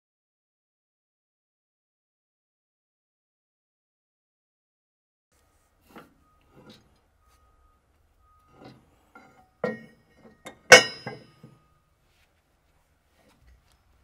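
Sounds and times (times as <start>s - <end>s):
tools clinking on metal: 8.5s - 11.6s.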